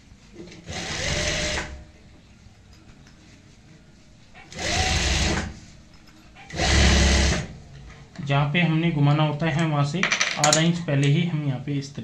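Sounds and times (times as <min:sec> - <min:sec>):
sewing machine stitching: 0:00.7 - 0:01.8, 0:04.5 - 0:05.5, 0:06.5 - 0:07.5.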